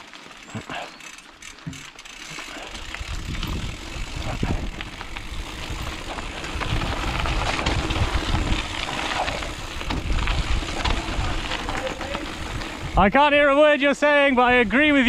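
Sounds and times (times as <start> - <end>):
bike rattling and knocking: 0.0 - 13.6
tyres rumbling over dirt trail: 0.0 - 15.0
wind buffeting microphone: 2.8 - 13.5.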